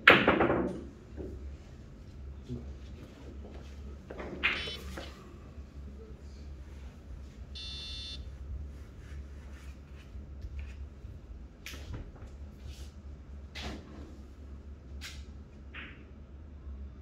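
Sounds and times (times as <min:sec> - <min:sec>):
steady low hum: 0:00.8 - 0:17.0
short high beep: 0:07.6 - 0:08.2.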